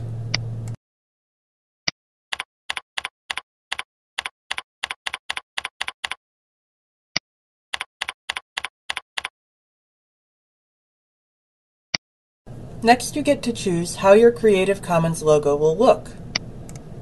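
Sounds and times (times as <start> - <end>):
keyboard keystrokes: 2.3 - 6.2, 7.8 - 9.3.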